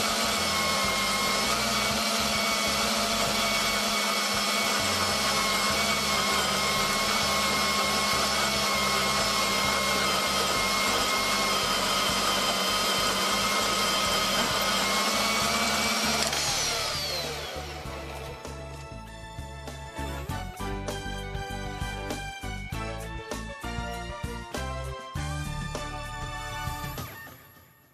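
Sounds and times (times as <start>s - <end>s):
bandsaw cutting steel tubing: 0.0s - 18.9s.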